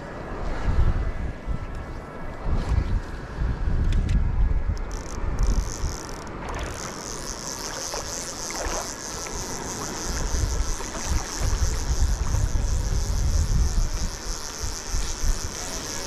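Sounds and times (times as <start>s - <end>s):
wind buffeting microphone: 0.0s - 16.0s
high insect buzz: 4.9s - 16.0s.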